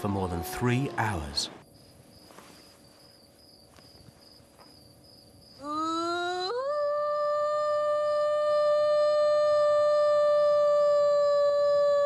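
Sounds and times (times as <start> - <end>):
woman imitating wolf howl: 5.6 - 12.0.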